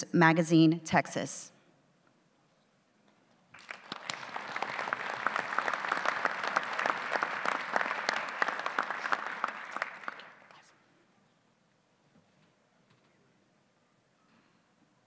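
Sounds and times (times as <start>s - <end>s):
audience applauding: 3.5s - 10.7s.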